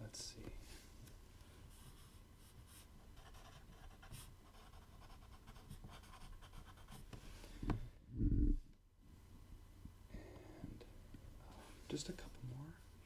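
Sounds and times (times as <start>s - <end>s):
pen scratching on paper: 1.8s - 7.0s.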